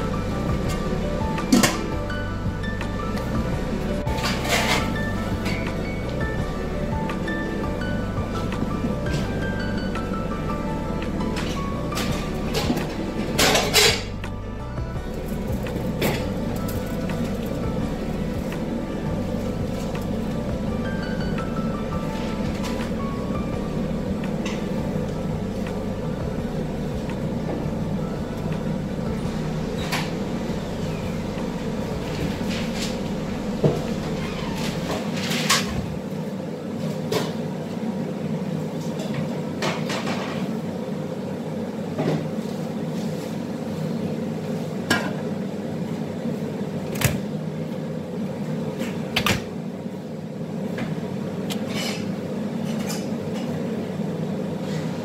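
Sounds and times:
kitchen burner and extractor hum: 0.0s - 55.0s
cooking pots and lids clanking: 0.5s - 2.0s, 4.0s - 6.2s, 11.1s - 14.3s.

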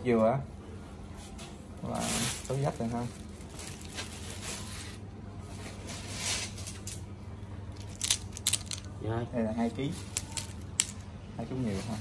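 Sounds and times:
steady low hum: 0.0s - 12.0s
plastic bag rustling: 1.8s - 7.0s, 11.6s - 12.0s.

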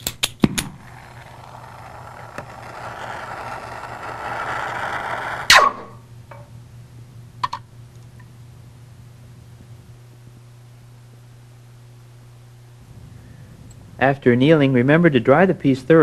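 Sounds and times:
torch flame hissing: 0.7s - 5.5s.

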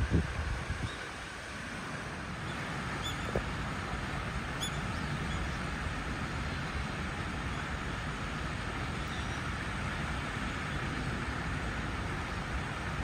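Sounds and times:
outdoor rumble and hiss: 0.0s - 13.0s.

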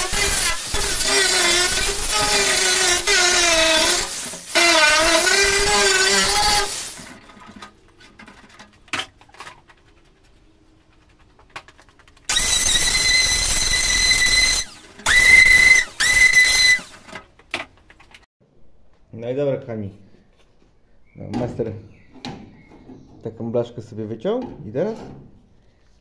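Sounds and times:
air tool whining: 0.0s - 7.1s, 12.3s - 17.1s
angle grinder running: 0.0s - 7.1s, 12.3s - 17.0s.

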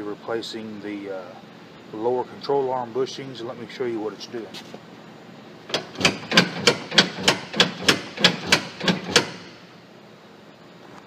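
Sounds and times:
suspension knocking: 5.7s - 9.5s.

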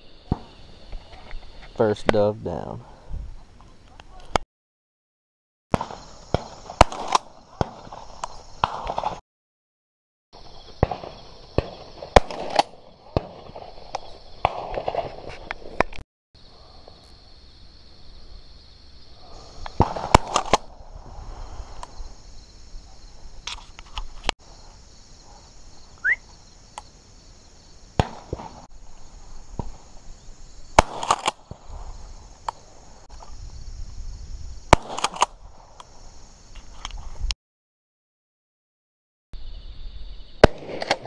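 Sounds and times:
shotgun shots: 5.8s - 8.0s, 10.8s - 13.6s, 28.0s - 28.6s, 30.8s - 31.6s, 34.7s - 35.4s, 40.4s - 41.0s.

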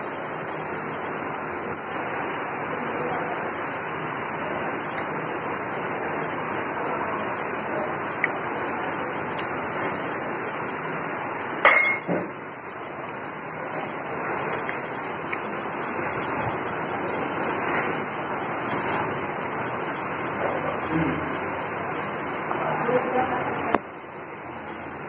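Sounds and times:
metal dishware clanking: 11.6s - 12.3s.

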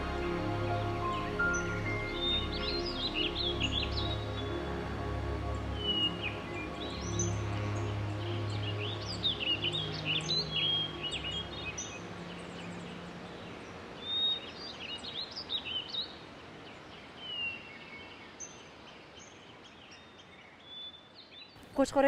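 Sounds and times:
low hum: 0.0s - 13.2s
steady outdoor hiss: 0.0s - 22.0s
small birds chirping and singing: 1.0s - 21.7s.

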